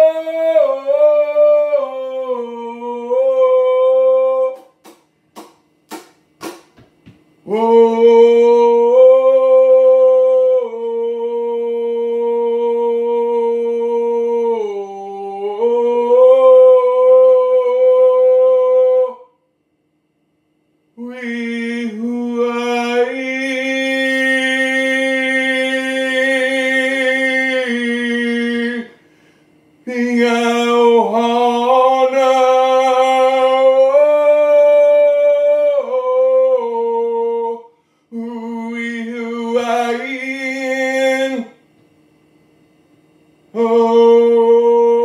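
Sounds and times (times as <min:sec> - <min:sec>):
person singing long notes: 0:00.0 - 0:04.8, 0:07.4 - 0:19.3, 0:29.9 - 0:41.5, 0:43.6 - 0:45.0.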